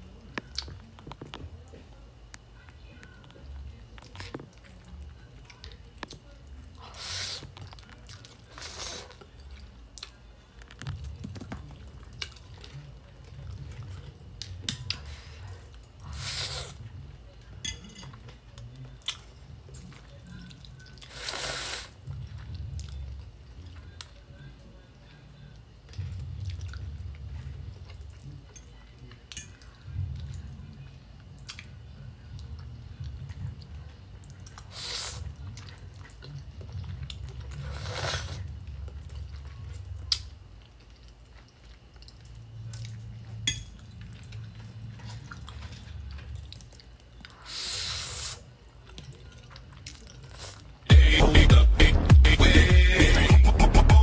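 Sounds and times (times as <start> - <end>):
wet chewing: 0.2 - 17.5, 18.2 - 24.7, 25.5 - 51.0
noodles slurped: 8.4 - 9.3, 21.0 - 22.0, 37.4 - 38.6.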